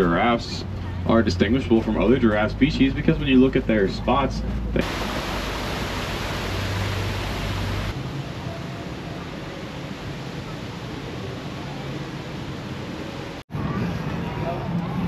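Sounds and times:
light steady hiss: 4.8 - 13.4
waterfall splashing into pool: 4.8 - 13.4.

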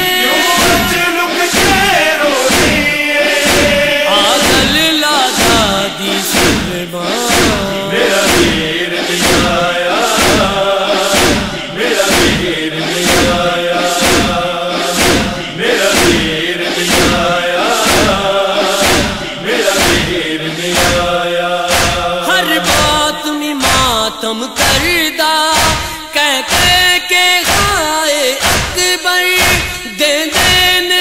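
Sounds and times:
chest-beating strokes: 0.0 - 23.0
men chanting a lament: 0.0 - 31.0.

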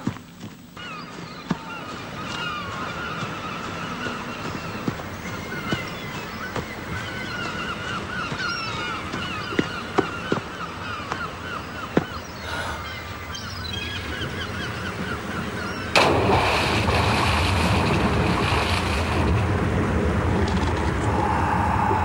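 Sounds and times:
birds calling: 0.0 - 22.0
surf and waves churning: 1.7 - 22.0.

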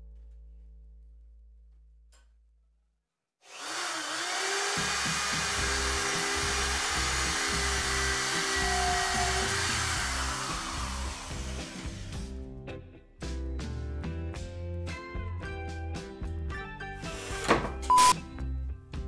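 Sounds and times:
electric drill whining: 3.5 - 12.4
background music with bass line: 5.4 - 19.0.

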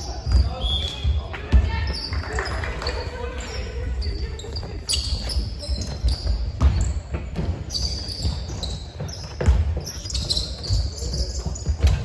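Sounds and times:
shoes squeaking on floor: 0.0 - 12.0
basketball dribbling: 5.2 - 12.0.

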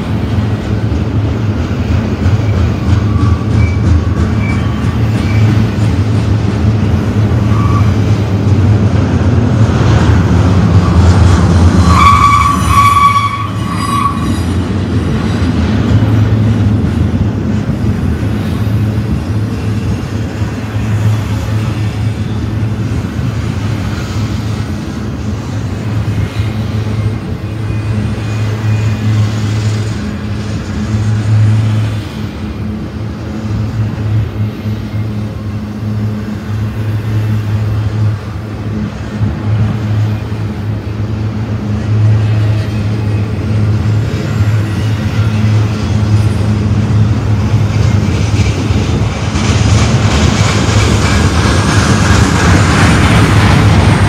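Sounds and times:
train wheels rumbling on rails: 0.0 - 54.0
high squeal of wheels: 2.4 - 5.6, 7.4 - 8.0, 11.8 - 14.6, 26.4 - 29.2.

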